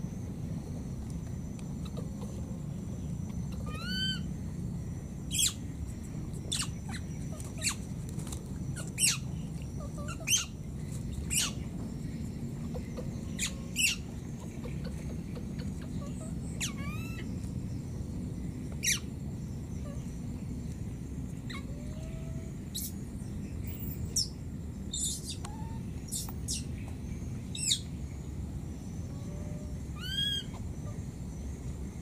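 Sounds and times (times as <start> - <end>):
whistled monkey calls: 3.4 - 4.3, 5.3 - 5.6, 6.5 - 7.8, 8.8 - 10.6, 11.3 - 11.6, 12.7 - 17.3, 18.8 - 19.1, 21.5 - 23.0, 24.9 - 26.7, 27.5 - 27.9, 29.2 - 31.0
baby monkey squeaking calls: 3.5 - 4.3, 5.3 - 5.6, 6.5 - 7.8, 8.8 - 10.6, 11.3 - 11.6, 12.7 - 17.3, 18.8 - 19.1, 21.5 - 23.0, 24.9 - 26.7, 27.5 - 27.8, 30.0 - 31.0.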